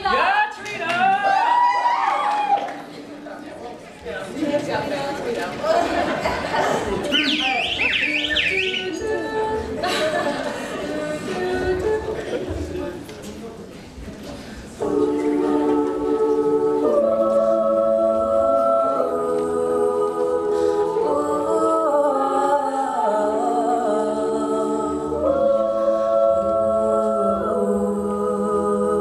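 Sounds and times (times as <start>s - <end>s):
women singing in close harmony: 8.0s - 13.0s, 14.7s - 29.0s.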